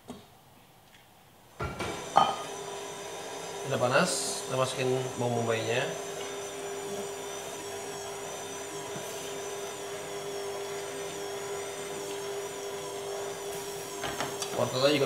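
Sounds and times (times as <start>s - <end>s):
stand mixer motor whining: 1.7s - 15.0s
beater mixing dough in steel bowl: 1.8s - 15.0s.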